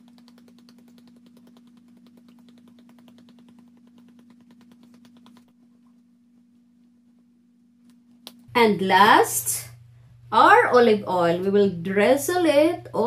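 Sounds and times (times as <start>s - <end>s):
spice shaker ticking: 0.0s - 5.9s.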